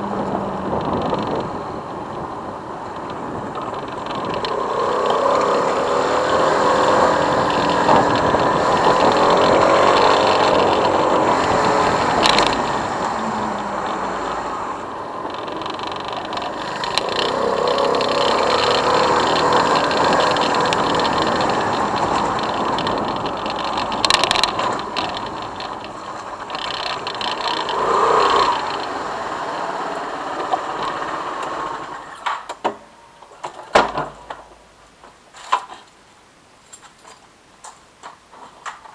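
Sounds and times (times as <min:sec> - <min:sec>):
motorcycle engine running: 0:00.0 - 0:32.0
wind and road noise: 0:00.0 - 0:38.9
sharp clicks: 0:00.2 - 0:29.7.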